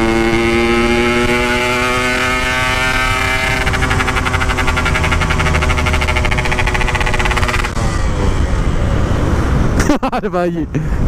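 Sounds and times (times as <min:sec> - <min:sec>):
motorcycle engine running: 0:00.0 - 0:08.4
man talking: 0:10.0 - 0:10.9.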